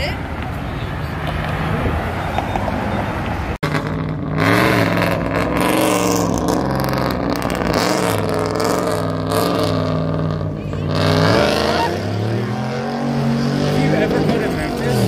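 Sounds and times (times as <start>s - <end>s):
car engine rumbling: 0.0s - 15.0s
engine revving: 3.5s - 15.0s.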